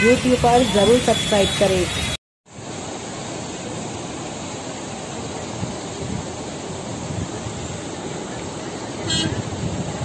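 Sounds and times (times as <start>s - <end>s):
floodwater rushing: 0.0s - 10.0s.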